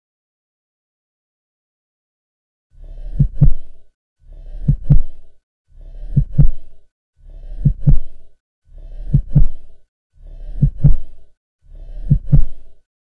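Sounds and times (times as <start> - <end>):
heartbeat thumps: 3.0 - 3.8, 4.4 - 12.8.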